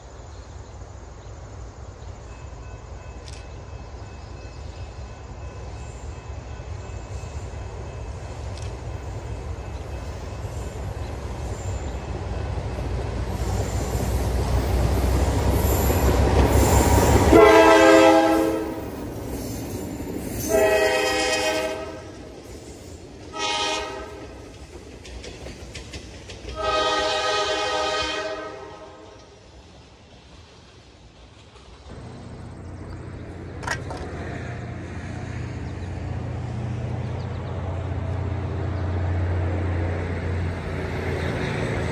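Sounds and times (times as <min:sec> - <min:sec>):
diesel locomotives rumbling: 0:00.0 - 0:41.9
locomotive air horn blasts: 0:17.2 - 0:18.9, 0:20.4 - 0:22.2, 0:23.3 - 0:24.3, 0:26.5 - 0:29.2.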